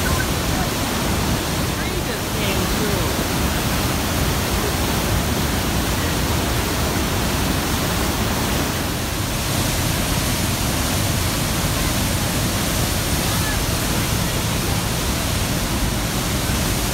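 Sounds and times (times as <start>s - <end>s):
river rushing through rapids: 0.0s - 16.9s.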